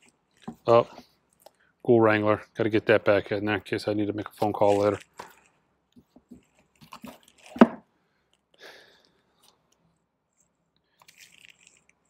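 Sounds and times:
sleeves scraping together: 0:04.3 - 0:07.6.

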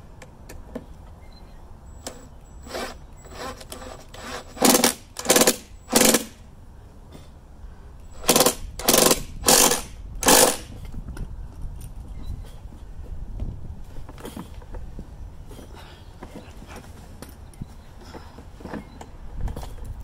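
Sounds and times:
cordless drill driving screw: 0:02.0 - 0:06.3, 0:08.2 - 0:10.6.

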